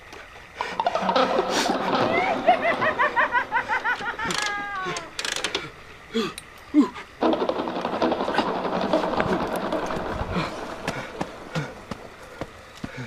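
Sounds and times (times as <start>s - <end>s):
motorcycle starter cranking: 4.2s - 5.7s, 7.2s - 11.5s.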